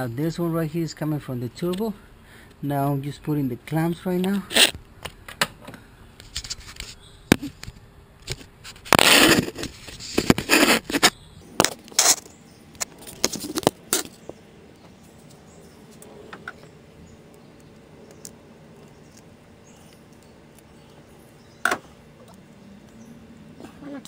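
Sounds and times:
small clicks and scrapes: 4.5 - 14.3
scraping rustle: 6.2 - 14.2.

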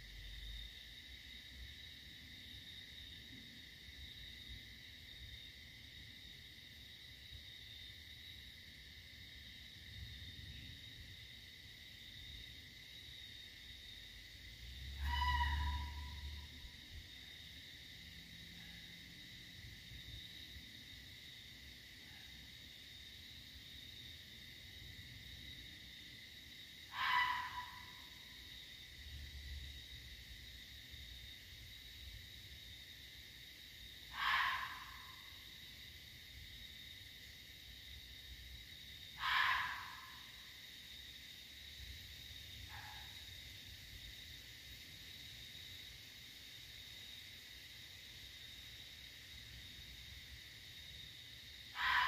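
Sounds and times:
animal hissing call: 15.0 - 16.4, 26.9 - 28.0, 34.1 - 35.2, 39.2 - 40.3, 51.7 - 52.0.

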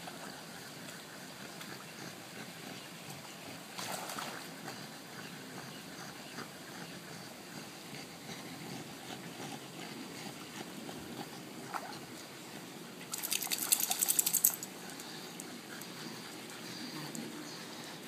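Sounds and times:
pool water lapping and splashing: 0.0 - 18.0.

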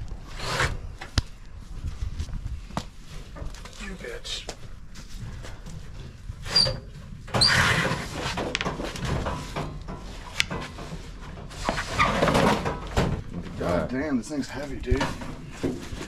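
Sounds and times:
metal cabinet scraping over boards: 7.4 - 9.6, 10.8 - 12.8.

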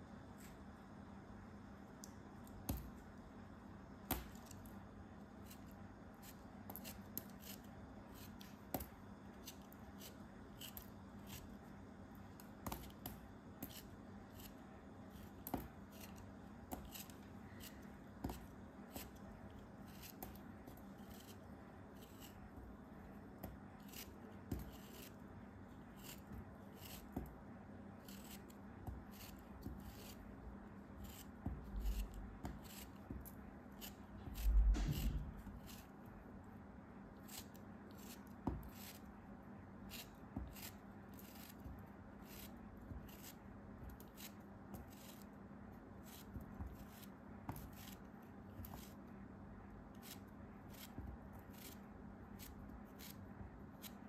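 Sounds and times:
faint steady hum: 0.0 - 54.0
craft knife scraping block: 5.4 - 11.5, 15.2 - 19.2, 19.8 - 22.6, 23.4 - 25.2, 25.9 - 27.3, 28.0 - 30.2, 31.0 - 36.0, 37.2 - 39.1, 39.9 - 45.3, 48.6 - 49.0, 50.0 - 51.8, 52.4 - 54.0.

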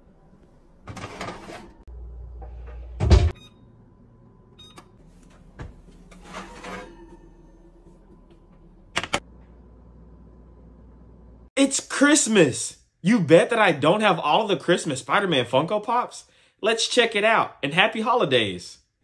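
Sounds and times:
baking tray scraping oven rack: 0.8 - 1.9, 5.9 - 8.0
oven door shutting thump: 3.0 - 3.4
short beeps from control panel: 3.4 - 3.7, 4.6 - 4.9.

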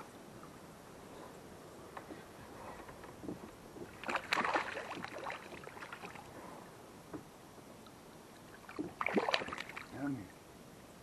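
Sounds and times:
water lapping against hull: 2.1 - 6.7, 8.3 - 10.4.

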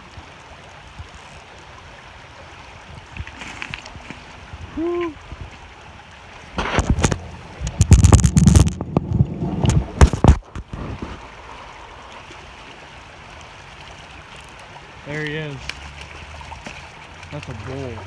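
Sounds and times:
stream flowing: 0.0 - 18.0
microphone handling knocks: 6.6 - 10.7.

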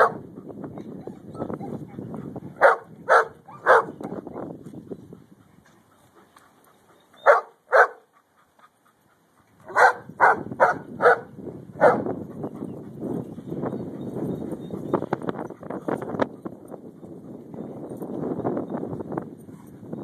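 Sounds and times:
dog barking: 0.0 - 0.2, 2.6 - 4.0, 7.2 - 8.1, 9.7 - 12.1.

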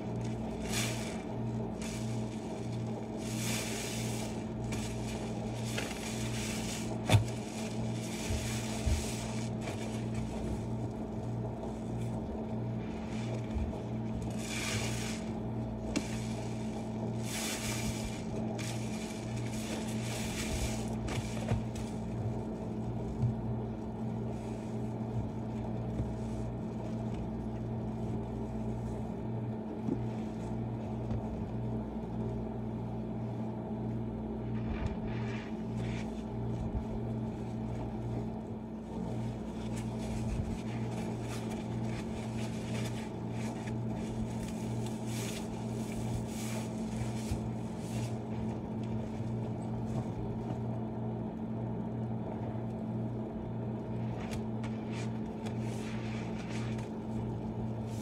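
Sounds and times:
steady low hum: 0.0 - 58.0
sponge squelching in suds: 0.1 - 23.2, 34.5 - 50.0, 54.0 - 58.0.

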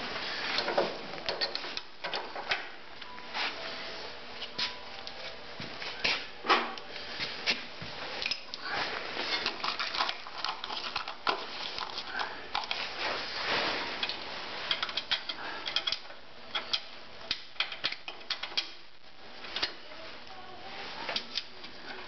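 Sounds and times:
scraping and rustling: 7.1 - 15.6
metal parts clicking and clinking: 9.3 - 12.8, 14.0 - 18.8.

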